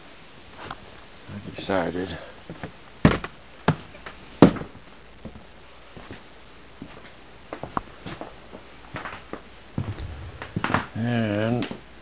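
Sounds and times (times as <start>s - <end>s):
light footsteps: 9.8s - 11.0s
loud knock: 9.8s - 11.1s.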